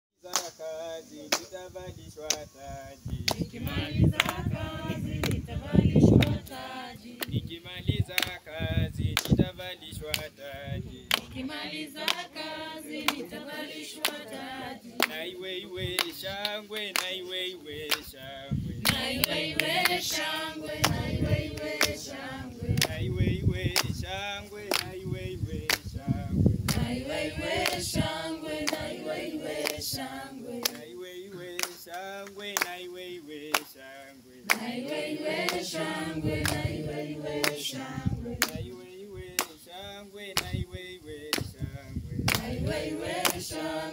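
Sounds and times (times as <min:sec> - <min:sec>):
hand claps: 0:00.3 - 0:00.6, 0:01.3 - 0:01.5, 0:02.2 - 0:02.5, 0:03.2 - 0:04.5, 0:05.1 - 0:05.5, 0:06.1 - 0:06.6, 0:07.2 - 0:07.4, 0:08.1 - 0:08.4, 0:09.1 - 0:10.4, 0:11.1 - 0:11.4, 0:12.0 - 0:14.4, 0:15.0 - 0:15.3, 0:15.9 - 0:18.2, 0:18.8 - 0:22.1, 0:22.7 - 0:23.1, 0:23.7 - 0:24.0, 0:24.6 - 0:25.0, 0:25.6 - 0:25.9, 0:26.6 - 0:26.9, 0:27.6 - 0:27.9, 0:28.6 - 0:29.0, 0:29.6 - 0:30.0, 0:30.6 - 0:30.9, 0:31.6 - 0:32.8, 0:33.5 - 0:33.8, 0:34.5 - 0:37.8, 0:38.4 - 0:38.7, 0:39.4 - 0:39.6, 0:40.4 - 0:40.6, 0:41.3 - 0:41.6, 0:42.3 - 0:43.6
group singing unaccompanied: 0:03.0 - 0:43.9.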